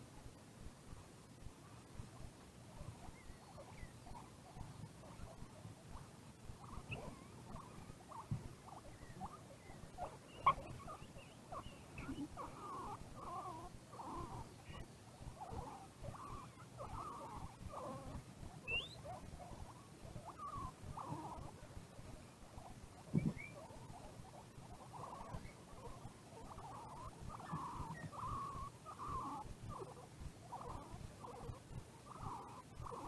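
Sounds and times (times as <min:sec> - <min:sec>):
guinea pigs squeaking: 0:02.1 - 0:33.0.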